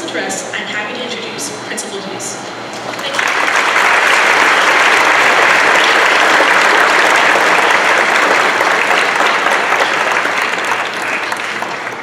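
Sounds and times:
audience applauding: 3.0s - 12.0s.

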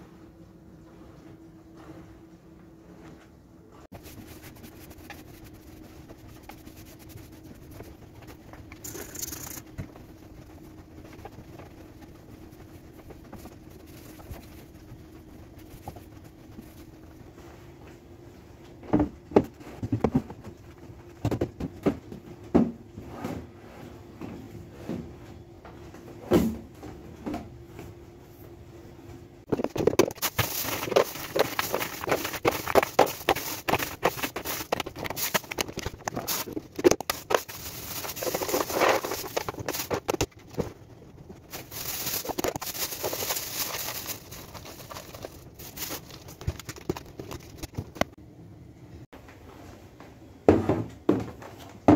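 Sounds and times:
faint steady hum: 0.0s - 51.9s
plastic bags crinkling: 29.5s - 40.3s, 41.5s - 48.1s.

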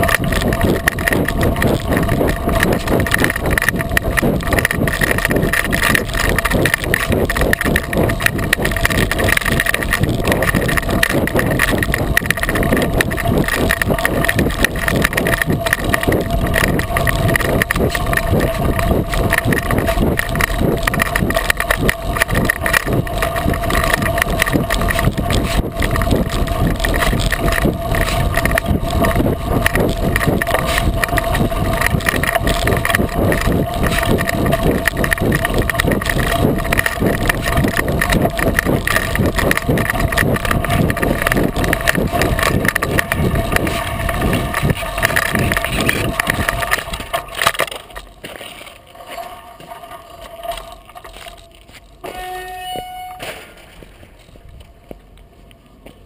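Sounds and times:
tyre crunching on gravel: 4.5s - 54.5s.

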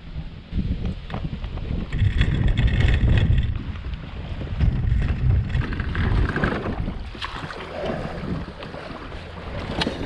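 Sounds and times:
water against hull: 0.0s - 10.0s
wind on microphone: 0.0s - 10.0s
microphone handling noise: 0.6s - 8.6s.

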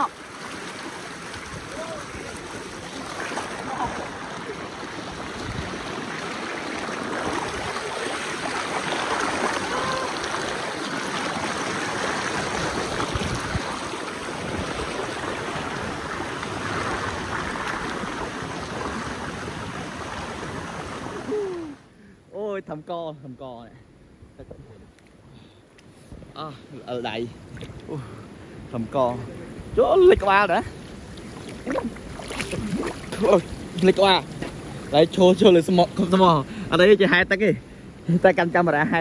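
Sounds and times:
waterfall rushing: 0.0s - 21.8s.

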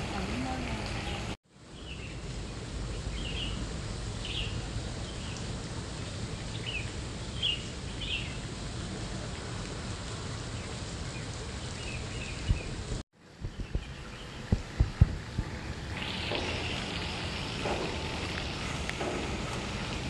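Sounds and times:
low outdoor rumble: 0.0s - 20.0s
small birds chirping: 6.3s - 8.5s, 10.4s - 15.3s.

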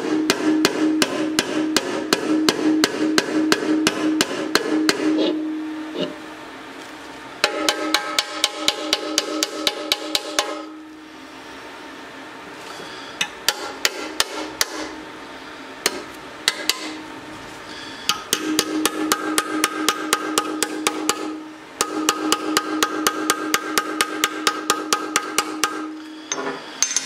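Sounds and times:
hammer tapping metal tank: 0.0s - 5.4s, 7.4s - 10.8s, 13.2s - 15.0s, 15.8s - 17.0s, 18.1s - 26.0s.

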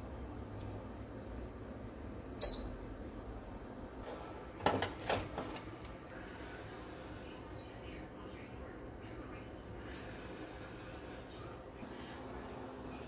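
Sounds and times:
control panel beep: 2.4s - 2.8s.

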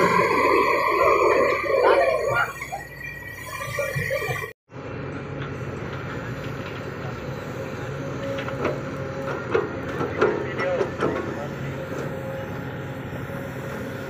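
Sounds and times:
excavator diesel engine drone: 0.0s - 14.0s.

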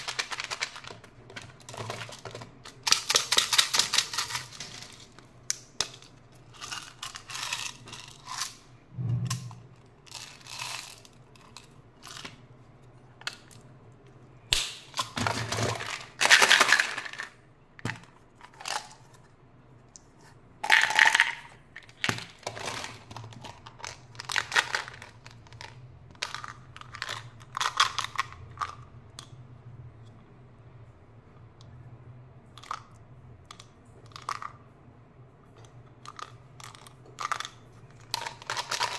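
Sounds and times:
candies rattling in containers: 0.0s - 8.6s, 10.0s - 12.3s, 15.0s - 17.4s, 20.6s - 28.8s, 36.0s - 38.9s.

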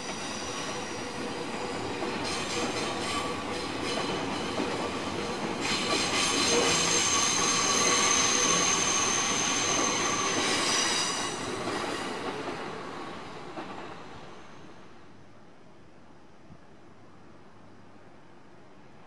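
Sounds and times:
train running on tracks: 0.0s - 15.2s
high wheel squeal: 6.4s - 11.4s.

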